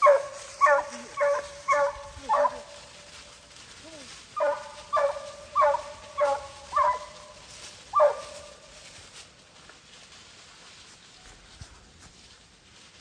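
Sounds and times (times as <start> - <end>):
hound barking: 0.0 - 2.8, 4.4 - 8.6.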